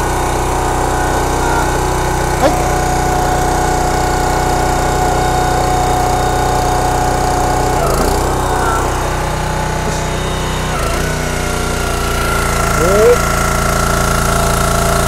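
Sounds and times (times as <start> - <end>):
log splitter engine running: 0.0 - 15.0.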